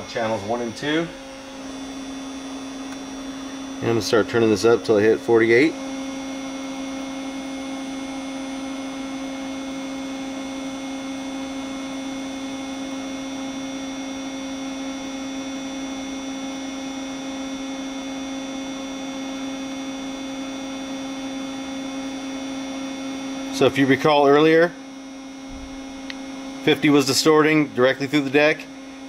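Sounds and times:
steady electrical hum: 0:00.0 - 0:29.0.

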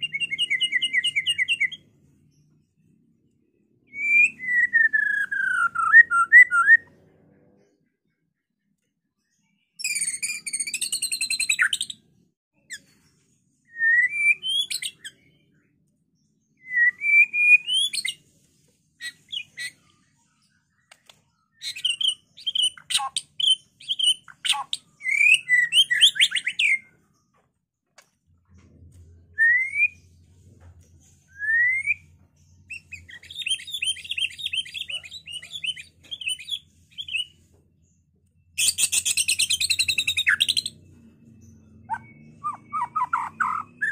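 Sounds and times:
songbird singing whistled phrases: 0:00.0 - 0:01.8, 0:03.9 - 0:06.9, 0:09.8 - 0:12.0, 0:13.6 - 0:15.6, 0:16.6 - 0:18.2, 0:19.0 - 0:19.8, 0:21.5 - 0:26.9, 0:29.3 - 0:30.2, 0:31.3 - 0:37.4, 0:38.6 - 0:40.8, 0:41.4 - 0:43.9.

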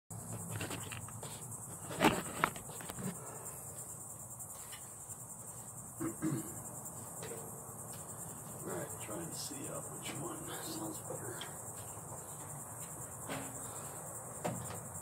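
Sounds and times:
faint knocks: 0:12.8 - 0:13.8.

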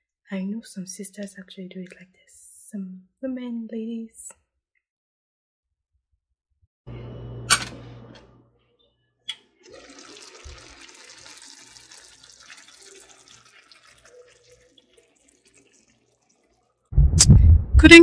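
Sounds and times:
pot simmering with crackling sizzle: 0:09.7 - 0:16.9.

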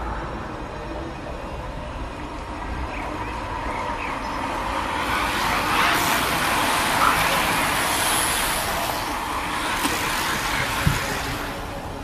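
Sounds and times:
bicycle tyres rushing on asphalt: 0:03.1 - 0:12.0.

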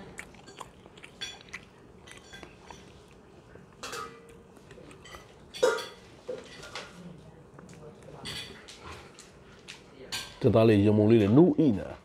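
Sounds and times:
clinks of dishes and cutlery: 0:03.8 - 0:04.4, 0:05.0 - 0:07.0, 0:08.2 - 0:08.9.

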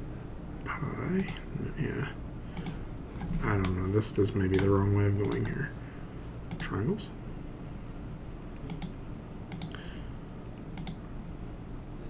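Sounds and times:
low steady hum: 0:00.0 - 0:12.0
computer mouse clicking: 0:01.2 - 0:01.4, 0:02.6 - 0:02.8, 0:04.5 - 0:05.6, 0:06.5 - 0:06.8, 0:08.6 - 0:09.8, 0:10.8 - 0:11.0.

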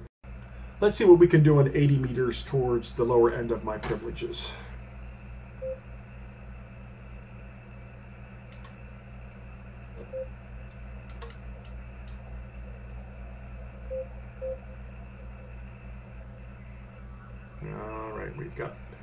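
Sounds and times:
steady low hum: 0:00.0 - 0:19.0
faint clicks: 0:08.5 - 0:08.8, 0:10.6 - 0:12.2.

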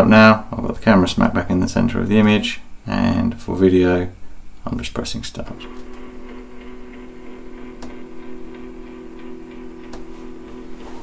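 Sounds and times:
turntable motor humming: 0:05.4 - 0:11.0.

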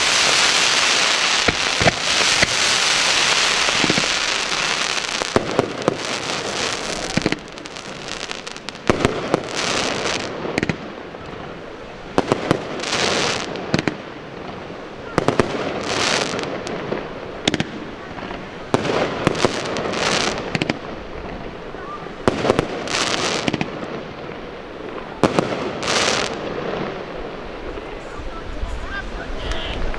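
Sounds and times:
firework shells bursting: 0:00.0 - 0:11.4
fireworks hissing: 0:00.0 - 0:29.9.

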